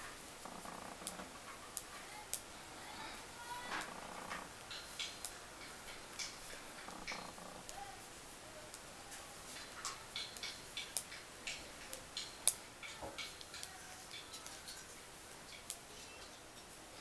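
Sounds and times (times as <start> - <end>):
metal knitting needles clicking: 3.6 - 7.8, 9.5 - 16.8.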